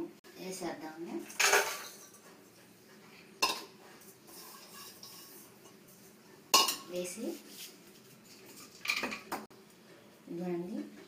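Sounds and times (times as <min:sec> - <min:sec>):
metal bowl clinking against pot: 0:03.4 - 0:05.8, 0:06.6 - 0:06.9.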